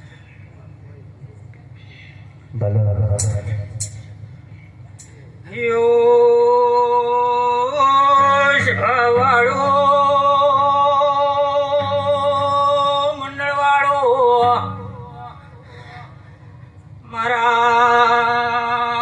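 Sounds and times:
man singing through a pa: 2.5s - 4.1s, 5.4s - 16.2s, 17.0s - 19.0s.

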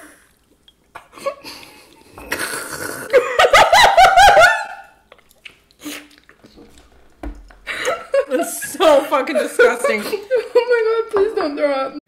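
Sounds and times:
women laughing: 3.1s - 4.9s, 7.7s - 11.9s.

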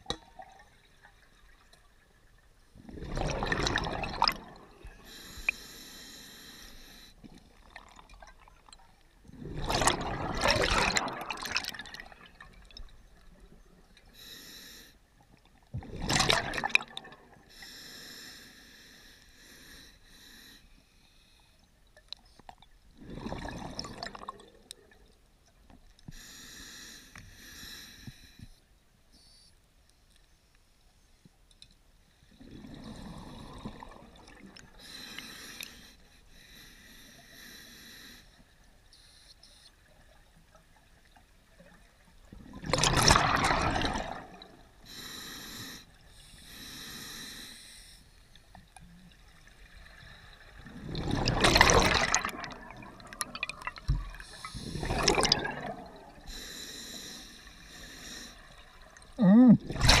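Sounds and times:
exhaled bubbles bursting: 2.8s - 4.9s, 9.3s - 12.8s, 15.8s - 17.4s, 23.0s - 24.6s, 42.4s - 44.6s, 50.6s - 56.3s, 59.1s - 60.0s
scuba regulator inhalation hiss: 14.2s - 15.0s, 44.9s - 48.1s, 56.3s - 58.5s.

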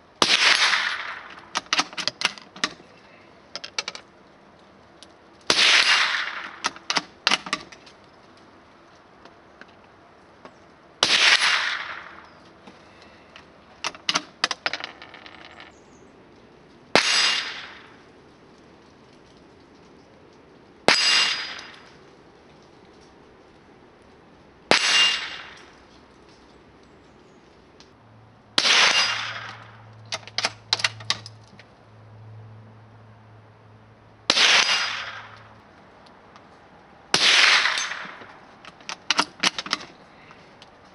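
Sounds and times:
rifle shots with echo: 0.2s - 1.5s, 5.5s - 6.7s, 11.0s - 12.3s, 16.9s - 18.0s, 20.9s - 21.9s, 24.7s - 25.7s, 28.6s - 29.8s, 34.3s - 35.4s, 37.1s - 38.2s.

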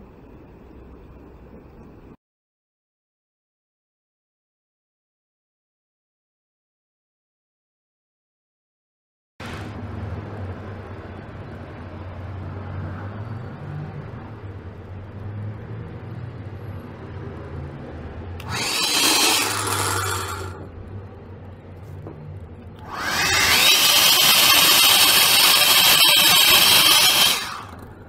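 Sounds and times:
small motor whining: 18.4s - 20.6s, 22.8s - 27.8s.

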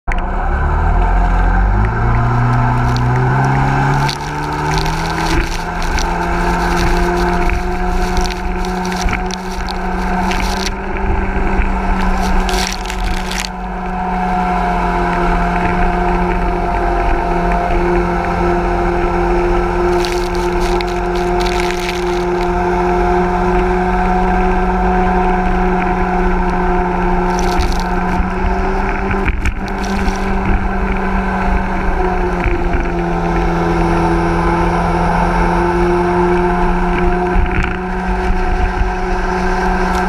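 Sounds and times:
water spray splashing: 2.4s - 11.0s, 11.7s - 13.5s, 19.8s - 23.5s, 27.2s - 31.1s.

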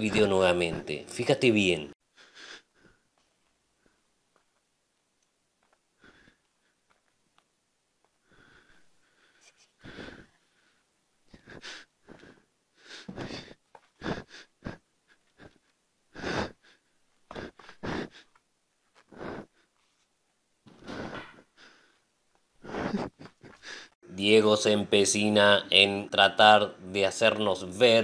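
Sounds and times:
person breathing noisily: 2.1s - 3.1s, 6.0s - 6.8s, 8.2s - 18.4s, 19.0s - 19.8s, 20.7s - 22.0s, 22.6s - 24.0s.

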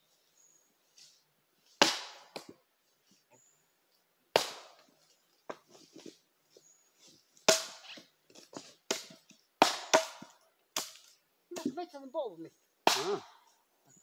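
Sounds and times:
axe chopping wood: 1.8s - 2.6s, 4.3s - 4.9s, 7.5s - 11.7s, 12.8s - 13.4s.

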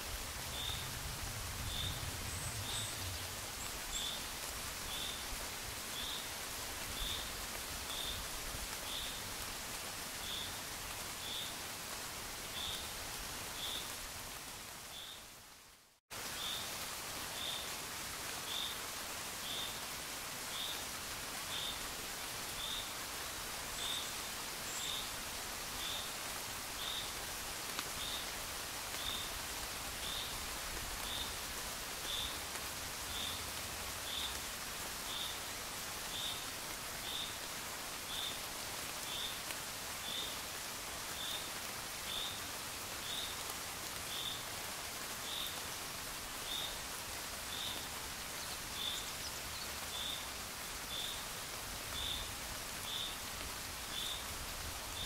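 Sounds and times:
gentle rain falling: 0.0s - 55.0s.

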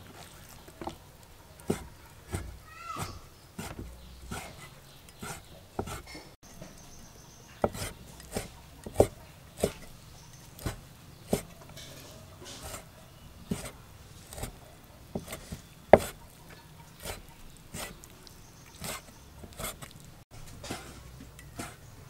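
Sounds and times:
cleaver chopping meat on wood: 1.6s - 6.2s, 7.6s - 9.9s, 10.5s - 11.6s, 12.6s - 16.3s, 16.9s - 18.1s, 18.8s - 19.9s.

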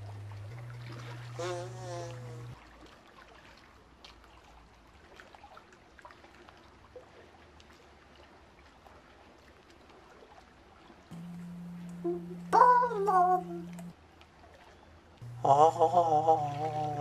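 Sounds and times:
small water drips: 0.0s - 1.4s, 2.0s - 15.4s
water trickling: 0.0s - 3.8s, 10.0s - 17.0s.

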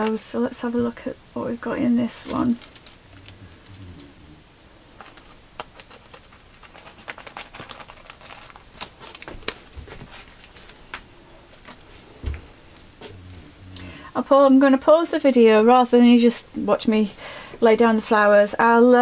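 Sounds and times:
plastic packet crinkling: 2.1s - 4.1s, 5.0s - 11.0s.

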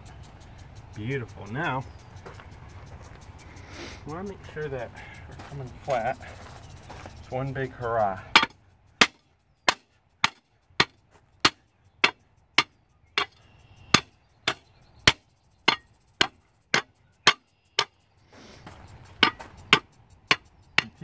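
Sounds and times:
patio block being struck: 8.3s - 17.9s, 19.1s - 21.0s.

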